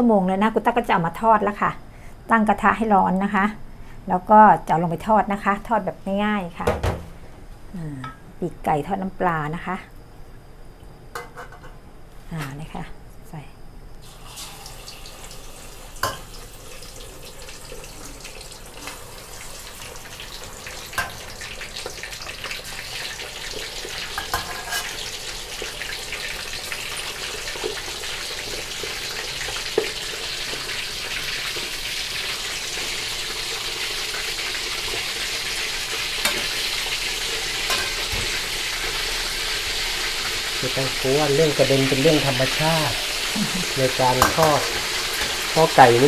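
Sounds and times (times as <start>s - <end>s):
chicken wings sizzling in oil: 14.0s - 46.0s.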